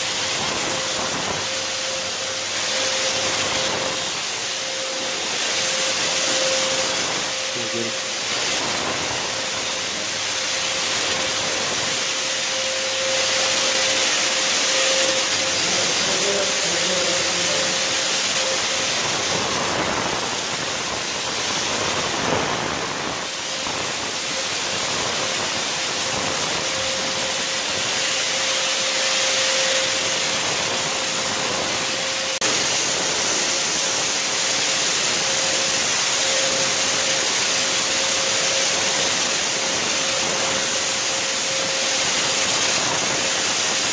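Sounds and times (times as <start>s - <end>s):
motor whine: 0.0s - 24.7s
spray hiss: 0.0s - 43.9s.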